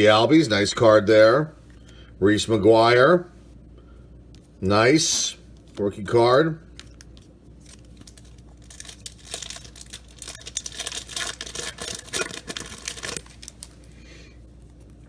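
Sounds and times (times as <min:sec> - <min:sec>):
wrapper tearing and crinkling: 0:07.6 - 0:13.9.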